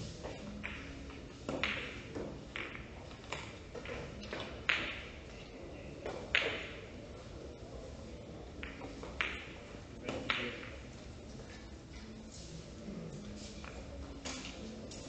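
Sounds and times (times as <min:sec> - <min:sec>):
billiard balls clicking: 0:00.3 - 0:07.0, 0:08.5 - 0:10.9.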